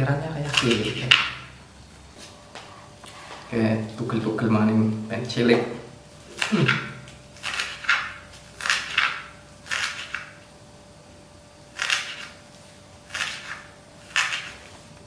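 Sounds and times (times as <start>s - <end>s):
knife chopping on wooden board: 6.3s - 10.3s, 13.1s - 14.6s.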